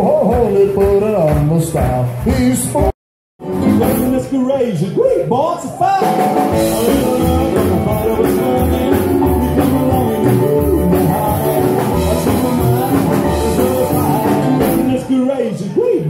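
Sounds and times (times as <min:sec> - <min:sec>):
upright bass: 0:00.0 - 0:04.5, 0:06.0 - 0:15.1
electric guitar: 0:03.4 - 0:04.3, 0:06.0 - 0:15.1
piano: 0:06.0 - 0:15.0.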